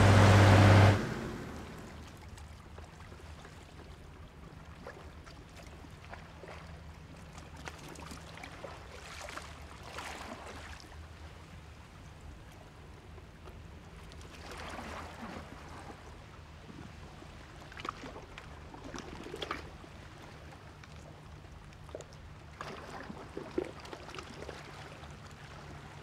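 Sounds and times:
distant engines humming: 0.0s - 2.2s
small waves lapping against rocks: 0.0s - 26.0s.

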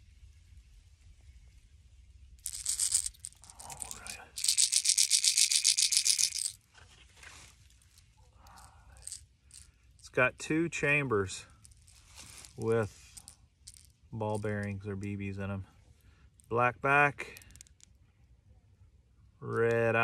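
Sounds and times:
fishing lure rattling: 2.4s - 6.7s, 7.6s - 10.2s, 11.5s - 14.8s, 17.2s - 18.0s.

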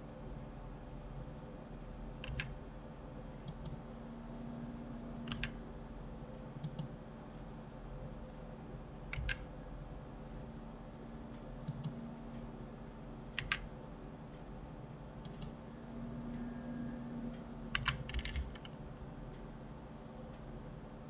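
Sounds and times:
steady low hum: 0.0s - 21.0s
keyboard and mouse clicks: 2.2s - 2.5s, 3.5s - 3.8s, 5.2s - 5.6s, 6.6s - 6.9s, 9.1s - 9.5s, 11.6s - 12.0s, 13.4s - 13.7s, 15.2s - 15.6s, 17.7s - 18.8s.

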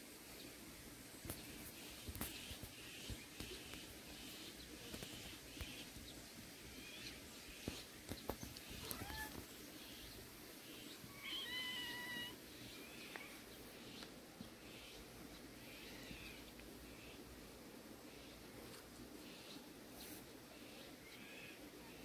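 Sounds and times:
kitten meowing: 8.8s - 9.4s.

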